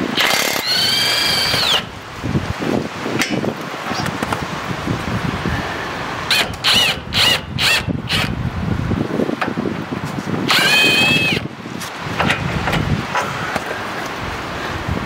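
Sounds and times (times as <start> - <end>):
impact wrench whine: 0.0 - 1.9, 6.3 - 8.4, 10.5 - 11.5.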